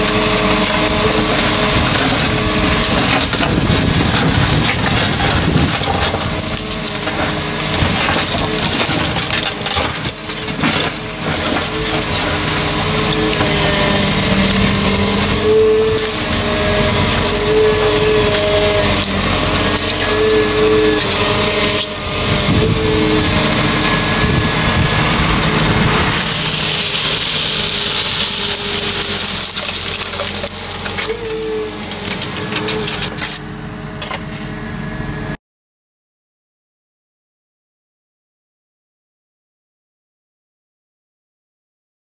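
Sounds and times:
excavator engine and hydraulic whine: 0.0 - 35.4
brush scraping soil: 11.8 - 33.4.

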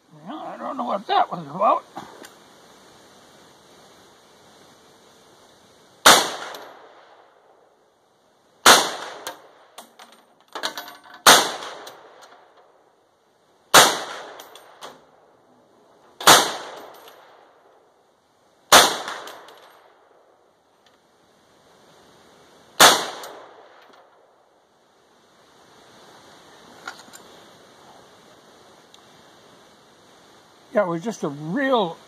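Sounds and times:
rifle shots ringing: 6.0 - 6.9, 8.6 - 9.5, 11.2 - 12.2, 13.7 - 14.8, 16.2 - 17.4, 18.7 - 19.6, 22.8 - 23.8
light metallic clinks: 9.2 - 11.2, 26.8 - 27.4.

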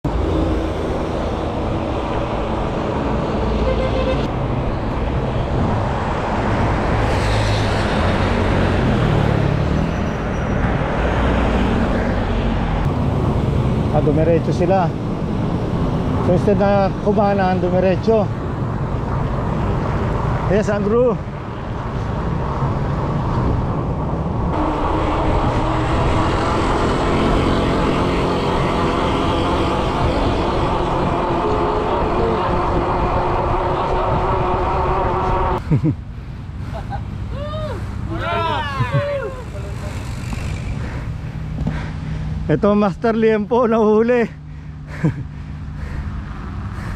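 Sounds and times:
road traffic noise: 0.0 - 46.9
cars passing close by: 0.1 - 46.9
bike tyre rumble on concrete: 39.3 - 42.0.

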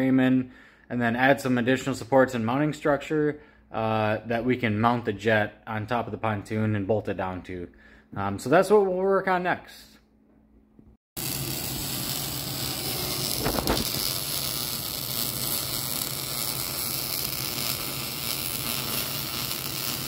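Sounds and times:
arc welding hiss: 11.2 - 20.0.

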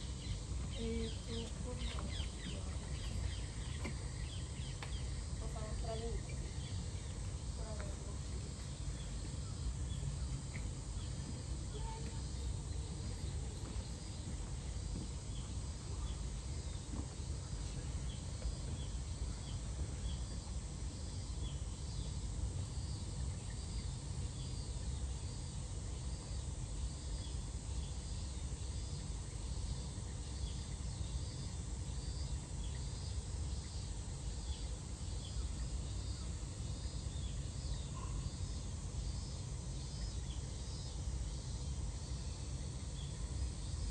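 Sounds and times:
insects calling in pulses: 0.0 - 43.9.

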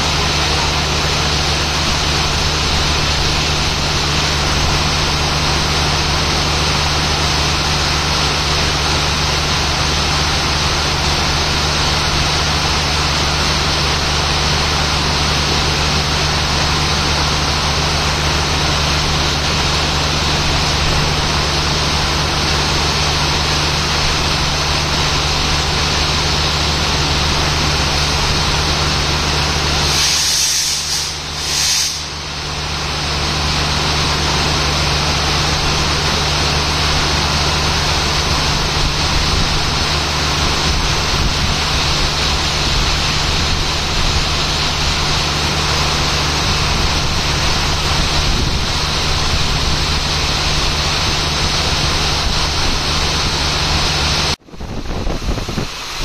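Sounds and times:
heavy rain pouring: 0.0 - 30.2, 31.2 - 56.0
diesel locomotive idling: 0.0 - 56.0.

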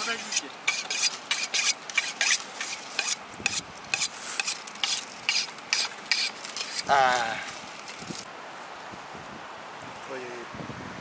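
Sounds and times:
knife scraping on honing steel: 0.0 - 6.9.

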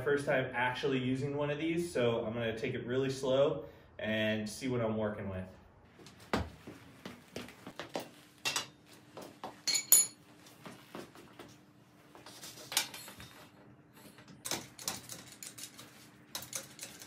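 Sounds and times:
ringing metal clinks: 9.7 - 10.2.

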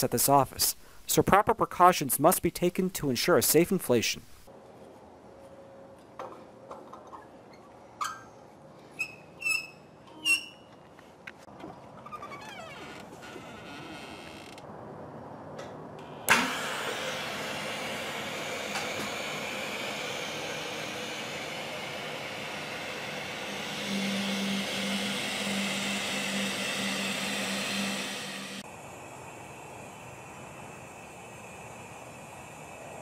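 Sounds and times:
gas hissing through nozzle: 16.3 - 33.0
low pulsing buzz: 17.4 - 32.8.

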